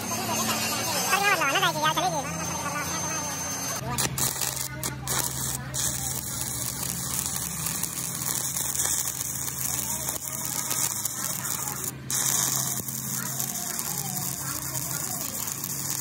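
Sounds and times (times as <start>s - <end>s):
welding arc crackling: 0.0s - 16.0s.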